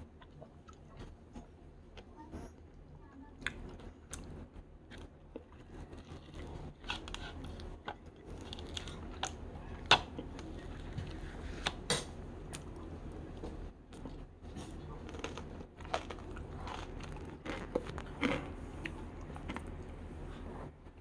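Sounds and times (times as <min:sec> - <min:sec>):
chewing and crunching ice: 0:03.3 - 0:11.8, 0:12.4 - 0:19.9.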